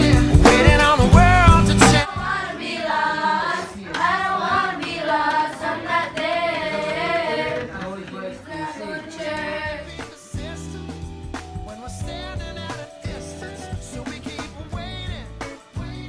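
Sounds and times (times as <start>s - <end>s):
children singing together: 2.0s - 10.0s.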